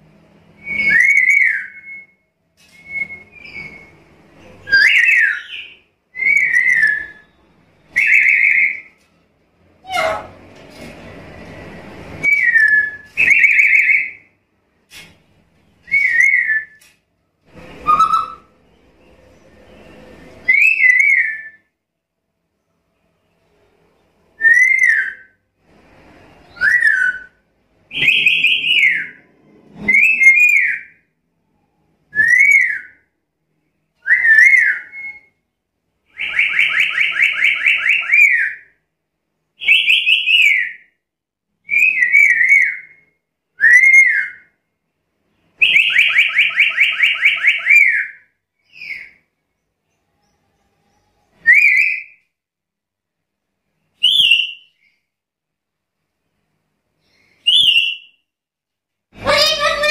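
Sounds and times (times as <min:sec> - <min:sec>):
parrot shrill whistled calls: 0:00.6 - 0:02.2, 0:04.7 - 0:08.9, 0:09.8 - 0:10.3, 0:17.8 - 0:18.5, 0:20.4 - 0:21.6, 0:34.0 - 0:35.4, 0:41.7 - 0:43.0, 0:45.6 - 0:49.2, 0:51.4 - 0:52.2, 0:57.4 - 0:58.2, 0:59.2 - 0:59.9
parrot rapid pulsed call: 0:59.2 - 0:59.9.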